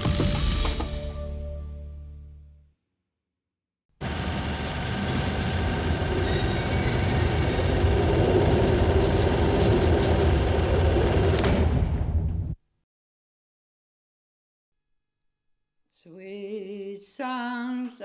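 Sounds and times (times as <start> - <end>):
loud rumbling drone: 4.0 - 11.8.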